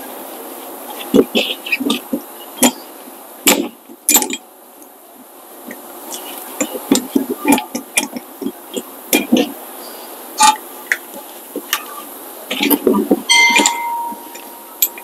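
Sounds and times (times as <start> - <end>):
metal tool clinking and knocking: 3.5 - 4.4, 12.5 - 15.0.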